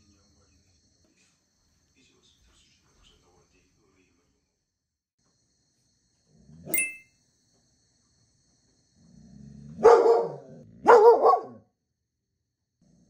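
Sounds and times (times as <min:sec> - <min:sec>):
dog growling: 0:09.0 - 0:11.0
dog barking: 0:09.8 - 0:11.7.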